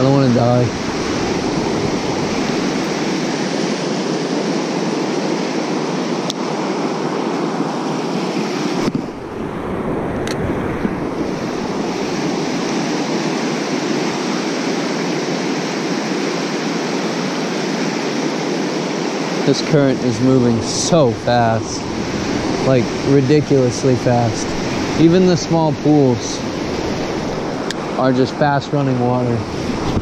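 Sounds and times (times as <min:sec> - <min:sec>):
river rapids rushing: 0:00.0 - 0:10.0, 0:19.1 - 0:30.0.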